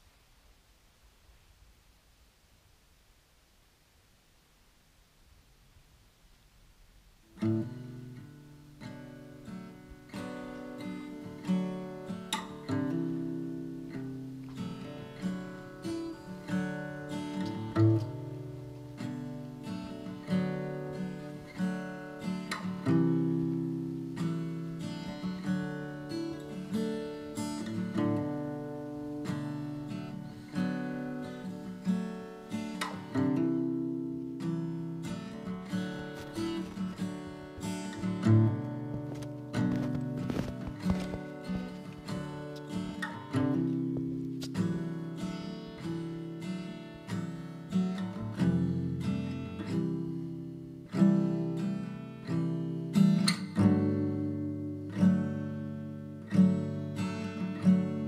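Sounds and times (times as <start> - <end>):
acoustic guitar music: 6.6 - 58.0.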